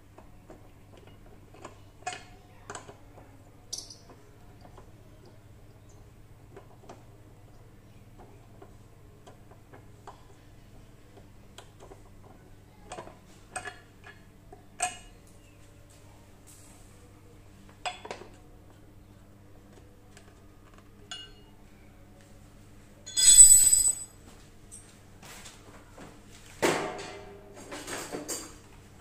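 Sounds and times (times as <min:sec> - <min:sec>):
light metallic clinks and taps: 0:03.7 - 0:04.1, 0:23.1 - 0:24.1.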